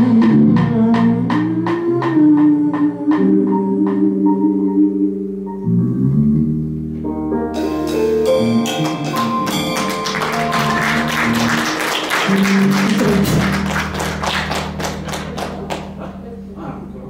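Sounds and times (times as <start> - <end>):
live band playing: 0.0 - 5.8, 7.3 - 16.0
picked guitar notes: 3.2 - 16.2
held bass note: 3.8 - 17.0.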